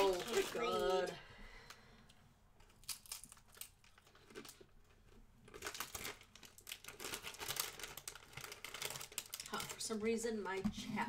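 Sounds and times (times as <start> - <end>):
snack packaging crinkling: 0.0 - 1.8, 2.6 - 10.2
potato chips crunching: 2.6 - 9.9.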